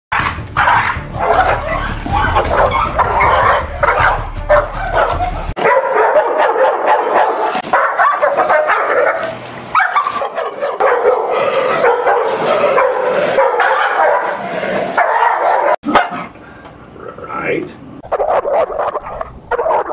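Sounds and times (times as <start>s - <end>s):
dogs barking aggressively: 0.1s - 16.4s, 18.1s - 19.9s
low rumble: 0.5s - 5.6s.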